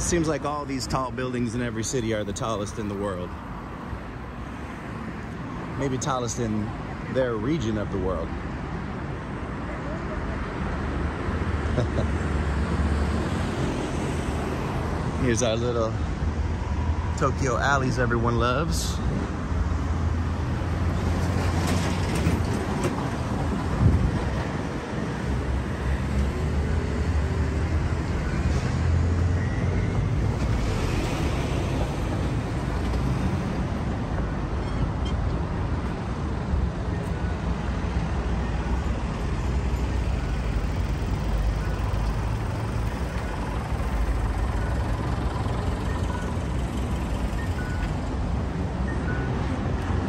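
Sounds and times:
road traffic rumble: 0:00.0 - 0:50.0.

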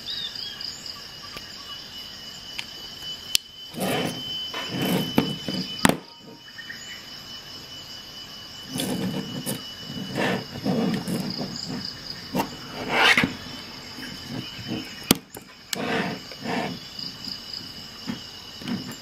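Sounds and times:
steady high-pitched whine: 0:00.0 - 0:19.0
multi-tool knocks and scrapes: 0:03.7 - 0:06.4, 0:08.7 - 0:16.8, 0:18.0 - 0:19.0.

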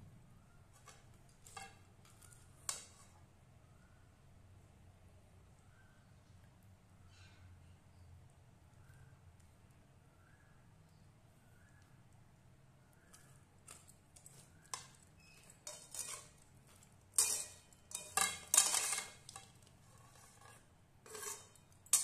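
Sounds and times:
metal spatula scraping wok: 0:14.2 - 0:22.0.

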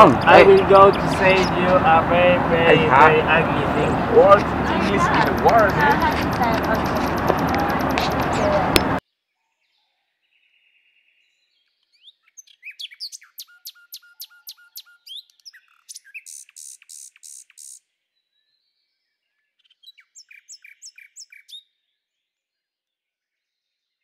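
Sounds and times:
small bird chirping: 0:11.9 - 0:17.8.

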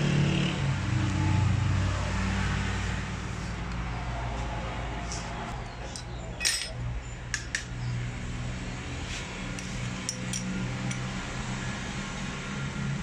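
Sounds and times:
small metal parts clicking: 0:05.9 - 0:07.6.

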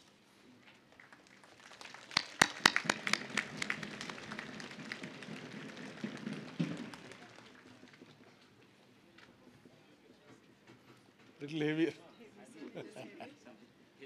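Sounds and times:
audience applauding: 0:00.9 - 0:08.2
sharp claps close by: 0:01.0 - 0:08.3.

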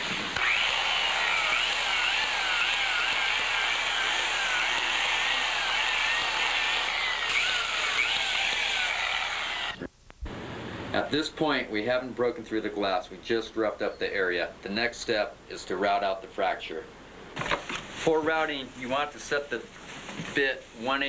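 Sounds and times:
grinder sanding whine: 0:00.0 - 0:09.9.

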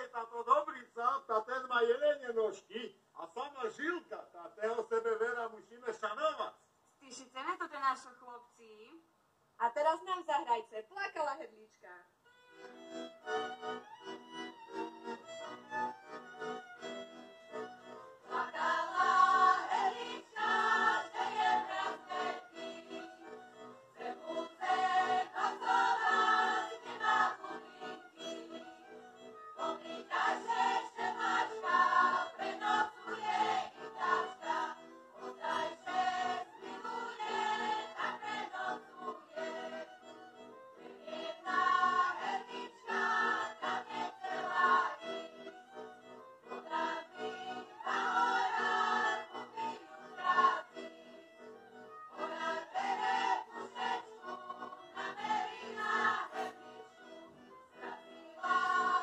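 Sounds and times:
accordion: 0:00.0 - 0:00.7, 0:03.5 - 0:08.0, 0:12.2 - 0:59.0
violins: 0:12.3 - 0:59.0
group singing folk song in chorus: 0:18.2 - 0:28.8, 0:29.6 - 0:40.2, 0:40.8 - 0:45.4, 0:46.5 - 0:51.1, 0:52.1 - 0:59.0.

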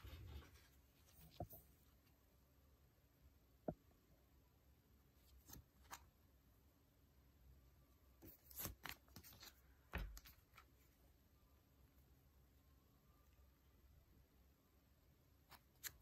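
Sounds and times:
banknotes in plastic sleeves crinkling: 0:08.2 - 0:10.7.

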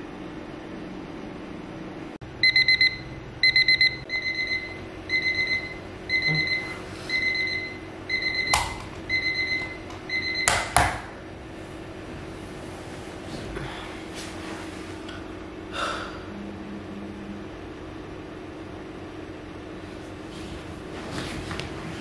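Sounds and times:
alarm clock beeping: 0:02.4 - 0:10.8.

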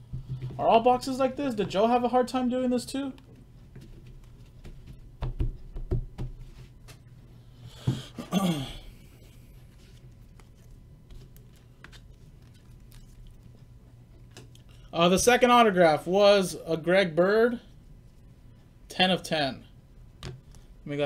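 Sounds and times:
cards rustling: 0:09.3 - 0:13.4.

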